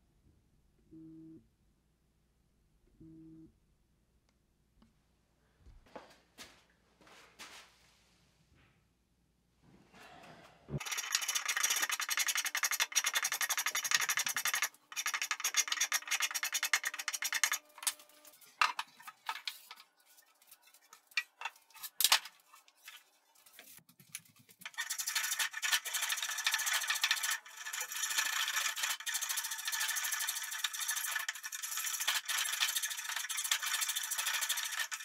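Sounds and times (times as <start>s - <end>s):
hand rubbing wood: 10.8s - 35.0s.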